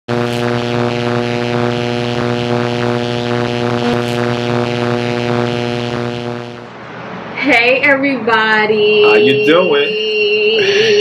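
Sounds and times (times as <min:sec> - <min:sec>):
electric buzz with pulsing crackle: 0:00.0 - 0:06.8.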